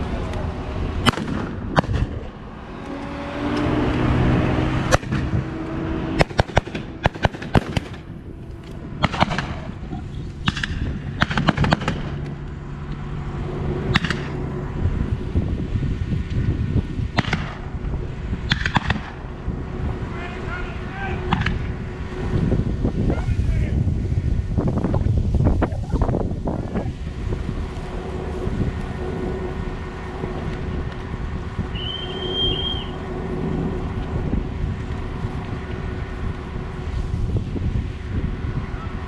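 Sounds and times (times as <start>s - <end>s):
locomotive engine hum: 0.0s - 39.0s
gunshots: 1.0s - 2.2s, 6.2s - 8.0s, 9.0s - 9.7s, 10.4s - 12.2s.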